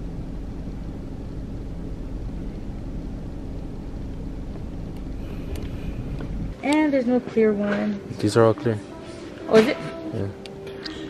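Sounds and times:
car interior low rumble: 0:00.0 - 0:06.6.

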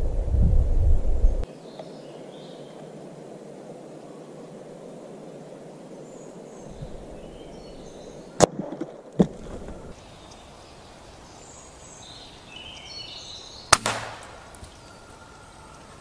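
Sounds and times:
air rifle shot: 0:13.7 - 0:14.6
faint bird chirps: 0:14.5 - 0:16.0.

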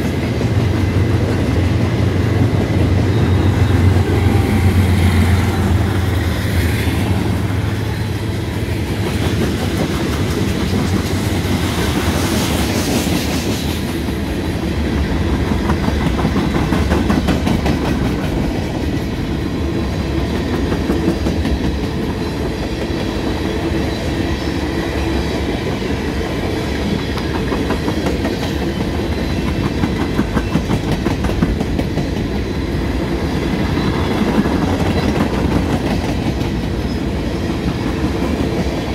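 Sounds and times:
freight cars rumbling: 0:00.0 - 0:12.7
diesel locomotive engine hum: 0:00.0 - 0:38.9.

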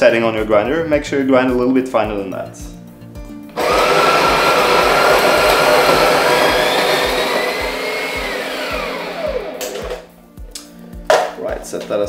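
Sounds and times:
coffee grinder motor whine: 0:03.5 - 0:10.0.

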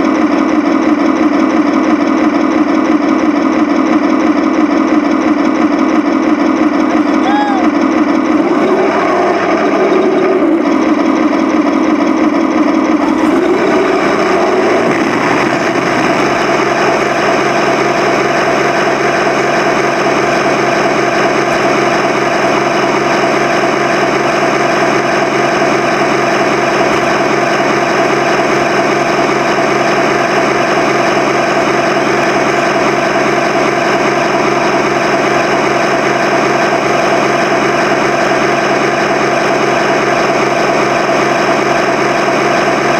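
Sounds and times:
simulated tank engine drone: 0:00.0 - 0:42.9.

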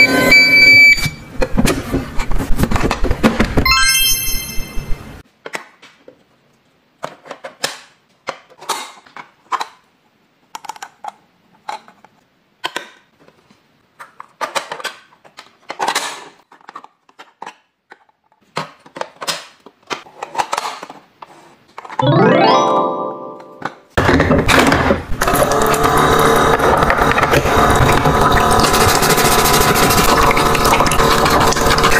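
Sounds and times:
electronic toy tune: 0:03.7 - 0:04.9.

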